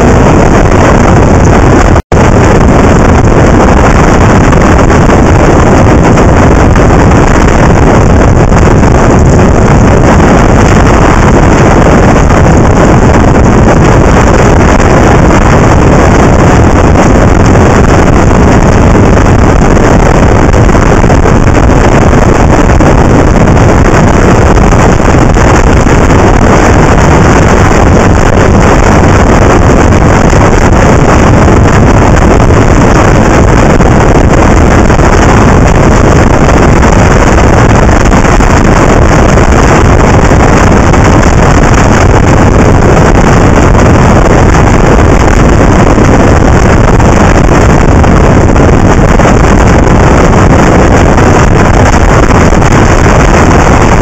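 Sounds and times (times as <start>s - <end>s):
wind rushing on microphone: 0.0s - 54.0s.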